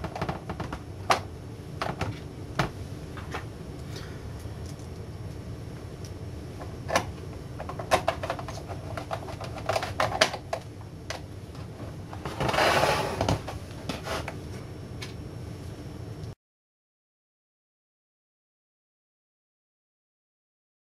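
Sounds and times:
steady low hum: 0.0 - 16.4
monitor scraping on desk: 12.1 - 14.4.

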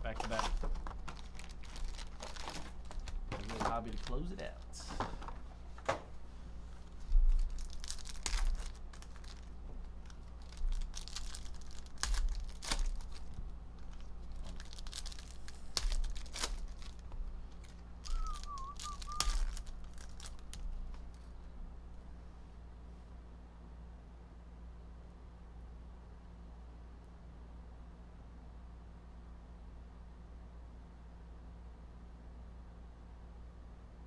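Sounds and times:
foil wrappers crinkling and tearing: 0.0 - 4.8, 6.8 - 21.2
short wavering whistle: 18.1 - 19.5.

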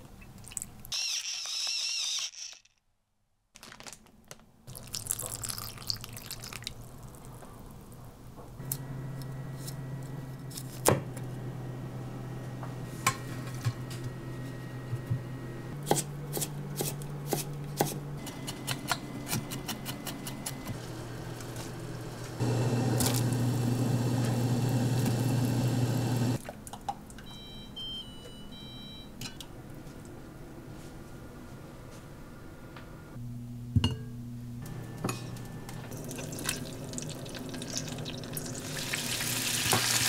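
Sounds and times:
water at rolling boil: 4.7 - 8.0, 20.8 - 26.5, 35.9 - 40.0.

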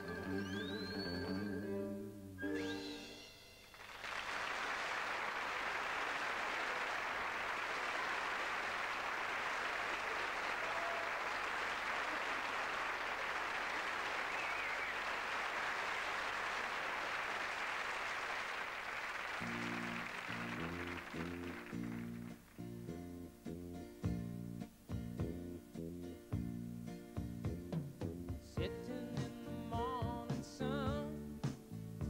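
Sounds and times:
audience applauding: 0.0 - 1.5, 3.7 - 22.6
music: 0.0 - 3.8, 19.4 - 32.0.

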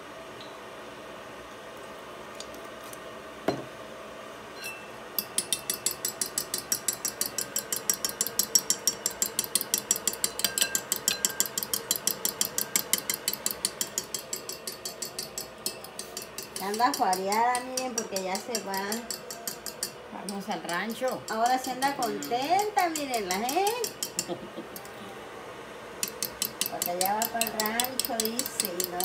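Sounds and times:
fork beating eggs in bowl: 5.2 - 24.9, 26.0 - 29.0.

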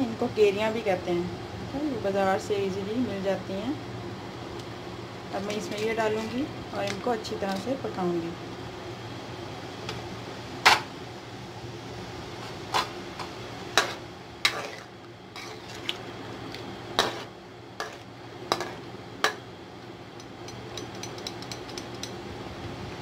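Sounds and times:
steady low hum: 0.0 - 23.0
spoon clinking metal pot: 20.2 - 22.2.

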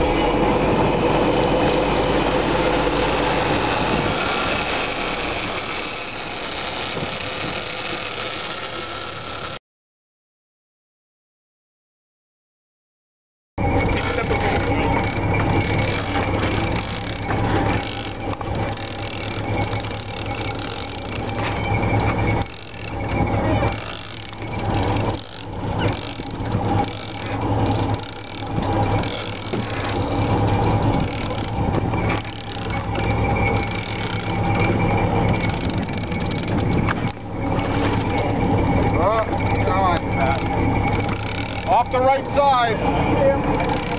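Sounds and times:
boat engine running: 0.0 - 9.6, 13.6 - 43.9
fishing reel ratchet clicking: 13.9 - 37.2, 38.9 - 42.7, 43.4 - 43.9.

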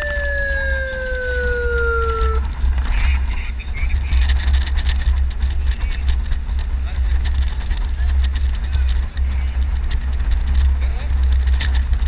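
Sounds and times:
siren wailing: 0.0 - 2.5
vehicle rumble: 0.0 - 12.0.

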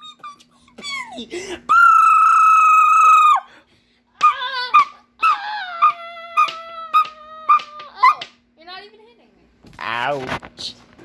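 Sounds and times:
wavering whining cries: 1.7 - 3.5, 4.2 - 8.3.

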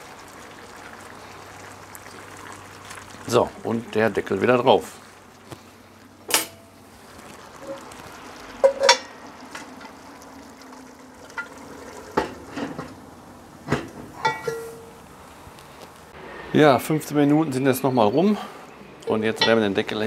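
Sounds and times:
meat and vegetables sizzling: 0.0 - 16.2
cast-iron lid clanking: 6.2 - 6.8, 8.6 - 10.0, 11.2 - 13.0, 13.6 - 15.0, 19.3 - 19.8.

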